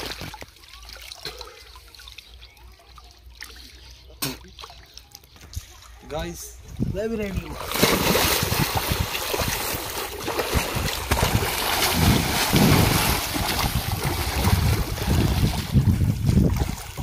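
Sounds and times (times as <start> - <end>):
water sloshing and splashing: 0.0 - 5.5, 7.4 - 17.0
wind buffeting microphone: 6.6 - 17.0.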